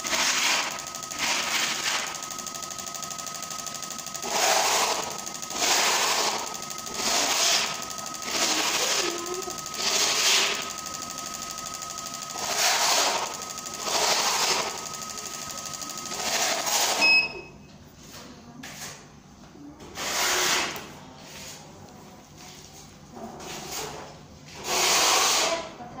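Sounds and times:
fuel injectors spraying rapidly: 0.0s - 17.0s, 24.6s - 25.6s
steady machine noise: 0.0s - 17.4s
short beep: 0.8s - 17.7s.

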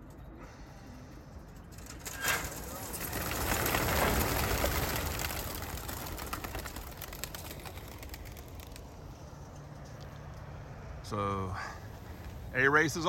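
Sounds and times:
pigeons flapping wings: 1.5s - 9.4s
sharp wing claps: 2.3s - 9.2s.

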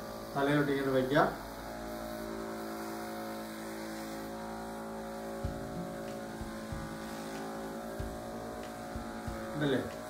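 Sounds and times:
electric massager motor hum: 0.0s - 10.0s
short low thumps: 5.4s - 7.1s.

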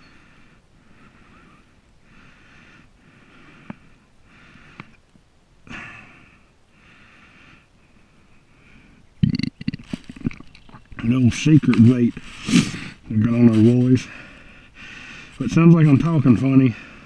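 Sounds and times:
man breathing through nose: 0.0s - 5.0s, 6.2s - 9.1s, 12.2s - 13.1s, 14.0s - 15.4s.

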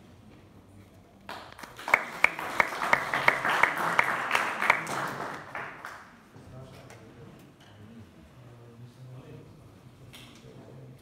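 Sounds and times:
audience applauding: 1.3s - 6.2s
loud close claps: 1.3s - 6.2s.

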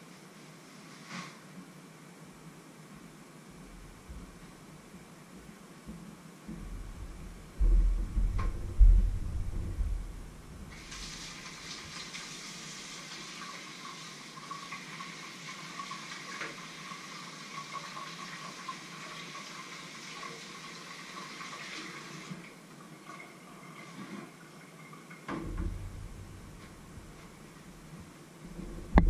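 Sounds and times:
heavy low thumps: 6.5s - 10.8s, 25.4s - 29.0s.

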